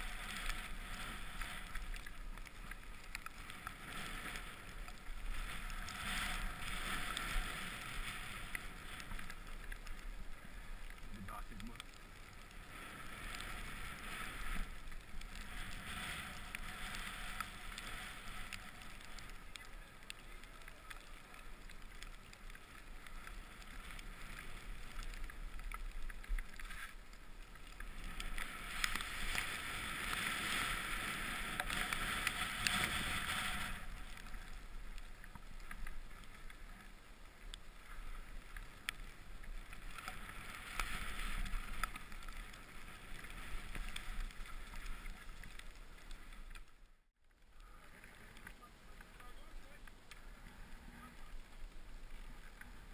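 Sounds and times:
sliding through snow: 27.8s - 34.9s.

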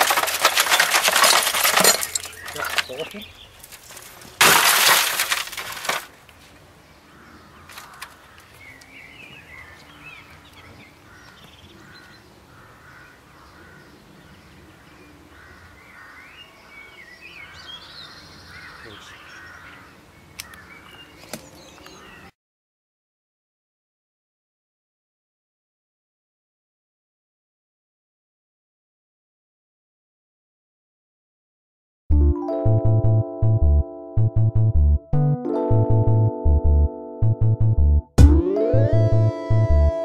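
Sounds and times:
computer monitor crashing on ground: 0.0s - 3.0s, 3.9s - 6.2s
birds chirping: 1.9s - 3.7s, 6.8s - 22.3s.

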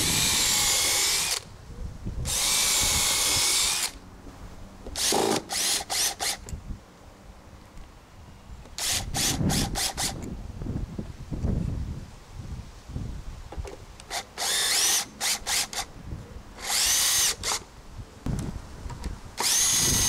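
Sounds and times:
cordless drill whining into wood: 0.0s - 1.5s, 2.2s - 4.0s, 5.0s - 6.5s, 8.7s - 10.3s, 14.0s - 15.9s, 16.6s - 17.6s, 19.4s - 20.0s.

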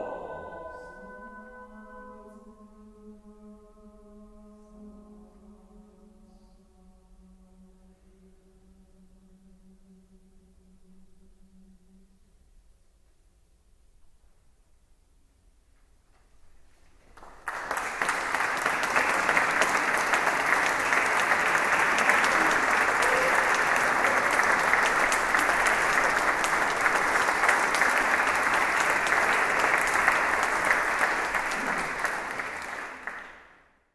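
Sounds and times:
audience applause: 17.2s - 33.6s.

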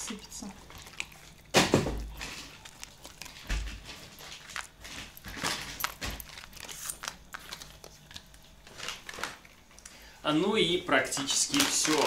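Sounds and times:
dog chewing treats: 0.1s - 7.0s.

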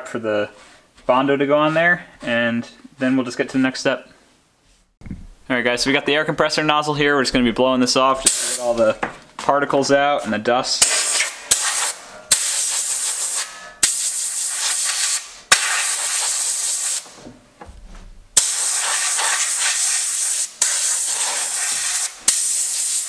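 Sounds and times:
compressed air blow gun hissing: 10.8s - 17.2s, 18.4s - 23.0s.

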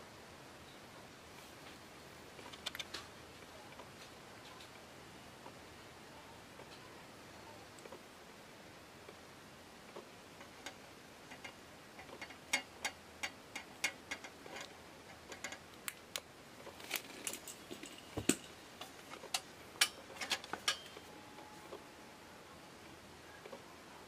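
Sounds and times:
metal clicks and taps: 10.4s - 16.3s.

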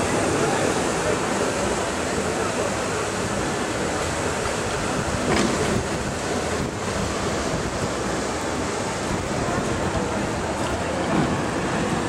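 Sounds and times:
crowd and street noise: 0.0s - 12.0s
wind on microphone: 4.4s - 8.2s, 8.9s - 12.0s.

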